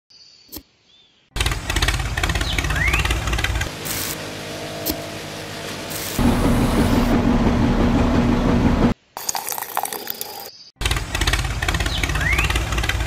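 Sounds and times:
small motor running: 1.4 - 7.1, 10.8 - 13.0.

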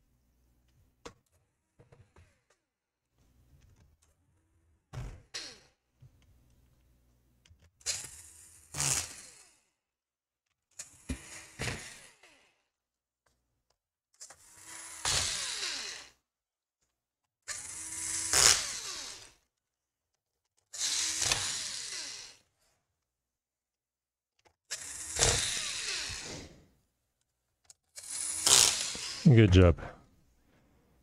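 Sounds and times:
electric screwdriver whine: 20.8 - 22.4, 24.7 - 26.5, 28.0 - 29.2.

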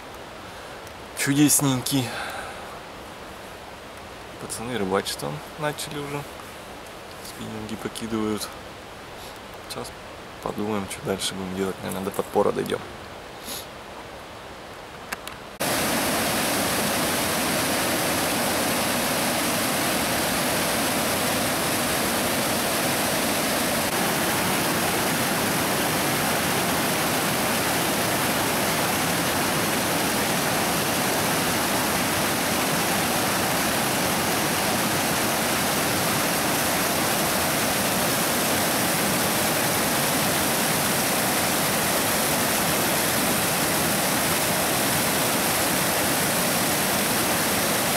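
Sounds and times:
stream rushing over boulders: 0.0 - 47.9.

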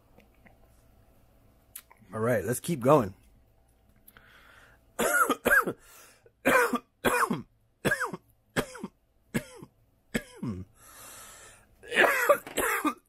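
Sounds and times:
person coughing hard: 5.0 - 5.8, 6.4 - 10.7, 11.8 - 13.0.

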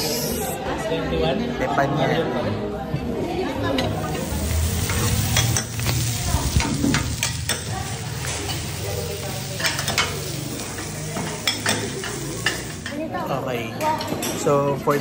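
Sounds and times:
food sizzling on a griddle: 3.9 - 13.0.

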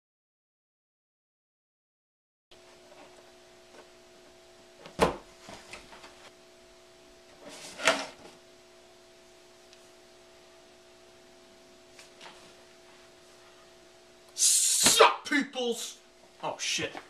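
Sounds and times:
faint steady hum: 2.5 - 17.0.

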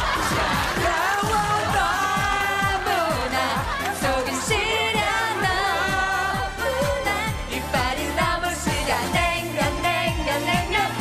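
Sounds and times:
kick drum beat: 0.0 - 7.0.

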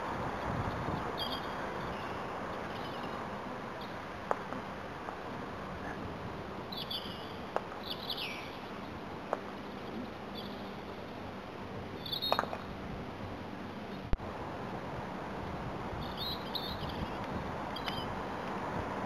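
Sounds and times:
small birds chirping: 1.0 - 4.0, 6.6 - 9.0, 9.6 - 11.3, 12.0 - 12.6, 16.0 - 18.2.

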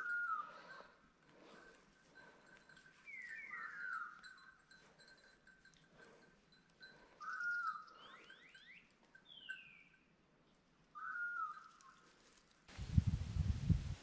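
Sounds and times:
birds whistling: 0.0 - 0.8, 3.0 - 4.6, 7.2 - 10.0, 11.0 - 12.0.

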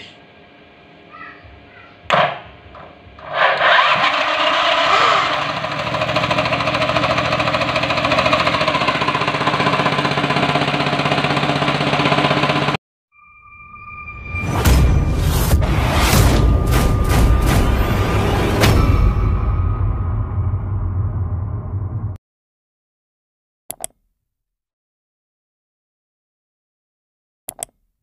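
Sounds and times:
small petrol engine running: 3.2 - 12.8
starter motor cranking: 3.2 - 12.8.

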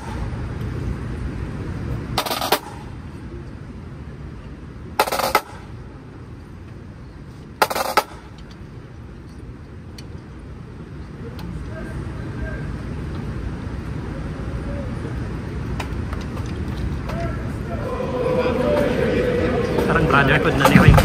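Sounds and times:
low rumble of crowd and city: 0.0 - 21.0
snare drum rolls: 2.2 - 2.8, 5.0 - 5.6, 19.6 - 21.0.

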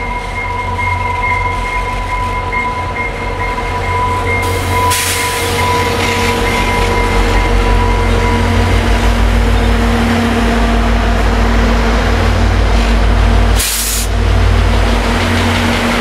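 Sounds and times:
diesel locomotive engines rumbling: 0.0 - 16.0
air hiss: 13.6 - 14.1.

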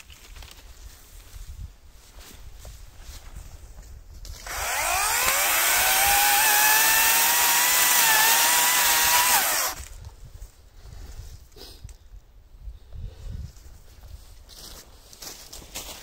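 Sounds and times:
chainsaw cutting branch: 4.4 - 9.9
electric chainsaw whine: 4.4 - 9.9.

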